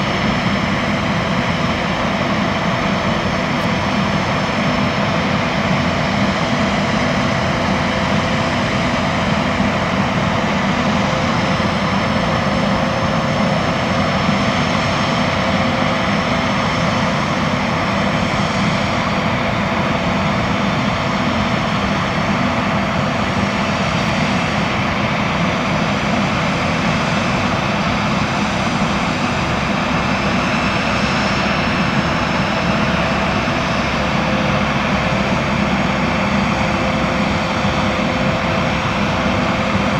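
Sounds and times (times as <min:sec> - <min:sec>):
jet turbines whining: 0:00.0 - 0:39.9.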